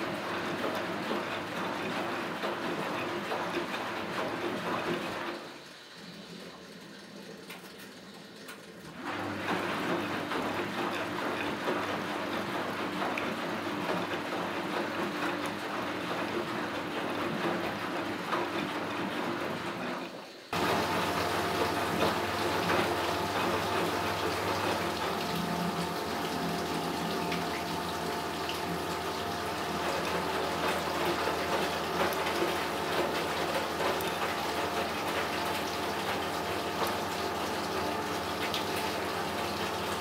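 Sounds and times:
water flowing into machine: 0:00.0 - 0:40.0
washing machine drum tumbling: 0:20.5 - 0:40.0.

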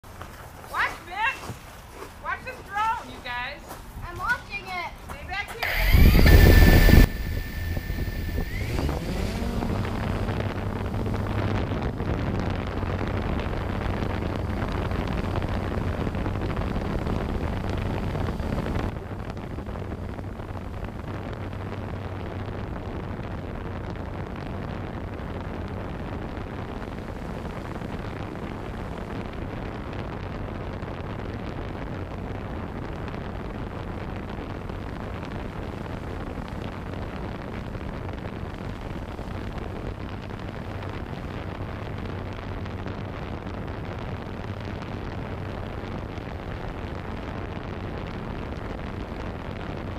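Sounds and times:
drone motors humming: 0:05.6 - 0:11.9
rush of air: 0:05.6 - 0:21.9.

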